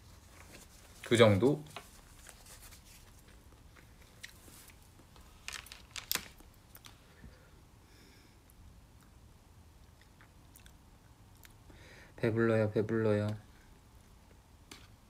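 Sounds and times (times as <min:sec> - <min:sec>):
chewing: 0:09.8 - 0:11.6.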